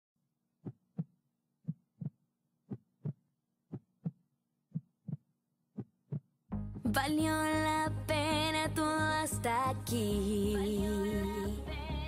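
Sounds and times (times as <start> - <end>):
heartbeat thumps: 1.7 - 5.2.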